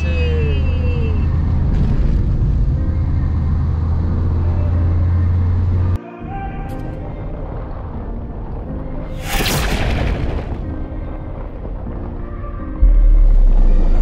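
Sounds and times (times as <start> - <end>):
moving vehicle rumble: 0.0 - 6.0.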